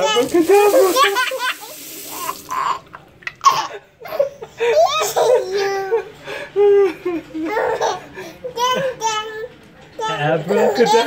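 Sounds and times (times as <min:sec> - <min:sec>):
baby laughing: 0:00.0 - 0:06.1, 0:06.8 - 0:09.2
man laughing: 0:06.6 - 0:07.4.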